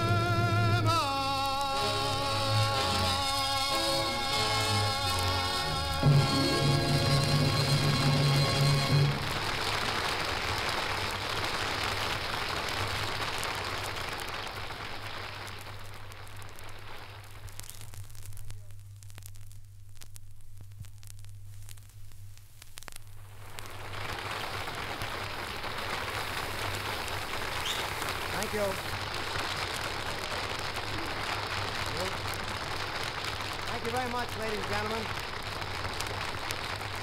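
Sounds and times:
music: 0:00.0 - 0:09.5
audience applause: 0:00.0 - 0:17.4, 0:23.4 - 0:37.0
disc crackle: 0:00.0 - 0:37.0.

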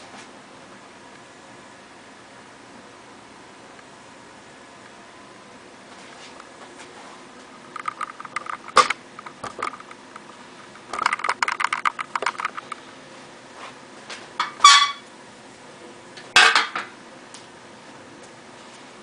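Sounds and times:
dishes and kitchenware clattering: 0:14.4 - 0:15.0.

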